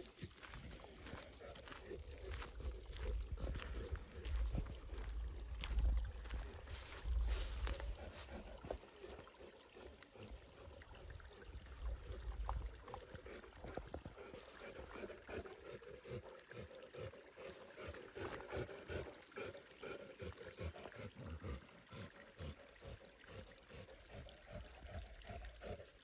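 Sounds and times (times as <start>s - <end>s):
brook trickling over stones: 0.0s - 26.0s
low rumbles: 1.7s - 8.8s.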